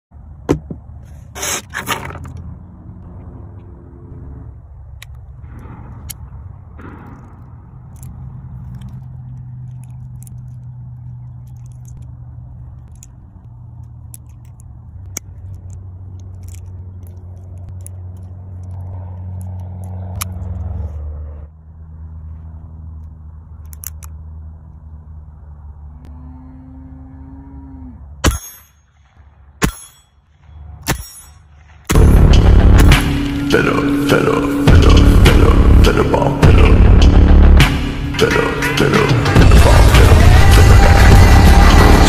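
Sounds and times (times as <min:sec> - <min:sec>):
metallic clicks of revolver loading: 0:07.1 - 0:20.7, 0:23.6 - 0:24.2.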